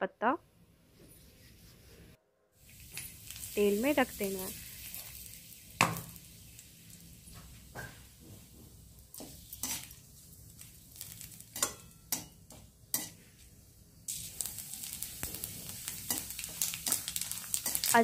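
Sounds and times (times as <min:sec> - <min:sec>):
hot oil sizzling: 0:02.6 - 0:18.0
metal spoon clinking on pan: 0:11.2 - 0:13.2, 0:16.0 - 0:17.0.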